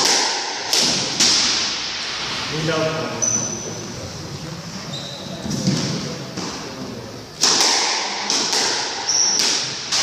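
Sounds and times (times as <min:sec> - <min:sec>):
squash ball smacks: 0:00.0 - 0:01.9, 0:07.4 - 0:10.0
sneakers squeaking on wooden floor: 0:03.1 - 0:06.5, 0:09.0 - 0:09.6.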